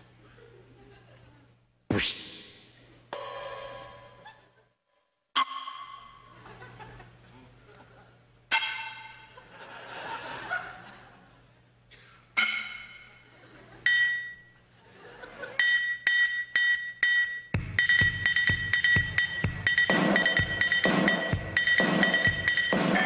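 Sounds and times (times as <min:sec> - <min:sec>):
cymbal strikes: 0:03.1 - 0:04.4, 0:08.5 - 0:09.4, 0:12.4 - 0:13.1, 0:15.6 - 0:23.0
audience laughter: 0:06.4 - 0:08.2, 0:09.3 - 0:11.5, 0:13.2 - 0:13.8, 0:14.8 - 0:15.6
drum beat with bass drum: 0:16.6 - 0:23.0.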